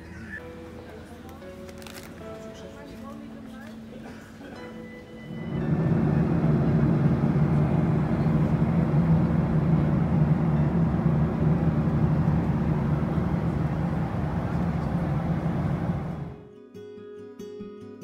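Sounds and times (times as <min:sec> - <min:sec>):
airliner cabin engine drone: 0:05.2 - 0:16.4.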